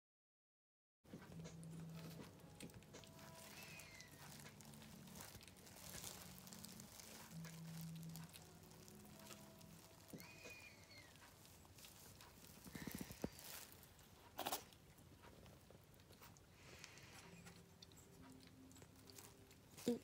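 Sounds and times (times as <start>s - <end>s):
soft rustling: 1.2s - 16.4s
young animal high calls: 3.3s - 4.4s, 10.0s - 11.2s.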